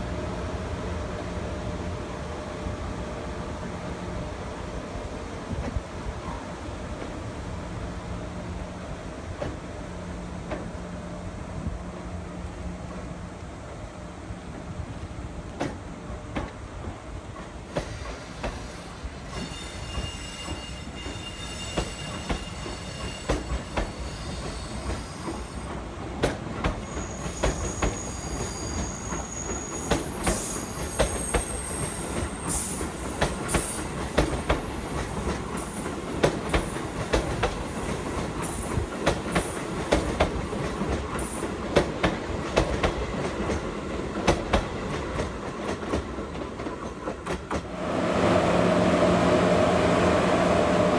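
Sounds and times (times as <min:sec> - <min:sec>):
train wheels clicking over rail joints: 0:15.0 - 0:47.8
thin high squeals: 0:18.3 - 0:25.7, 0:26.8 - 0:32.9.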